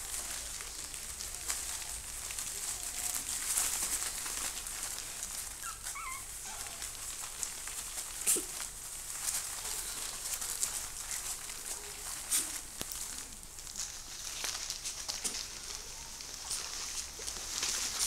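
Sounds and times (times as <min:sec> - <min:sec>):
puppies whimpering: 0:05.2 - 0:07.2.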